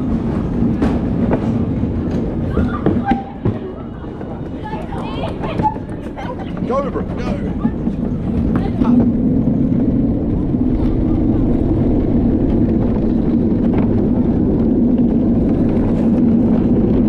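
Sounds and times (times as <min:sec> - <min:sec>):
wheels rumbling on concrete: 0:00.0 - 0:17.0
low hum: 0:03.6 - 0:17.0.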